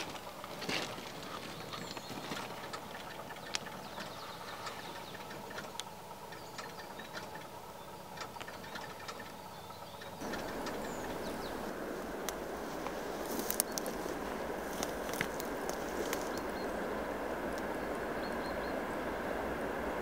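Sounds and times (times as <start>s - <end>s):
faint steady hum: 0.0s - 20.0s
even rushing noise: 10.2s - 20.0s
light ticks: 17.5s - 18.5s.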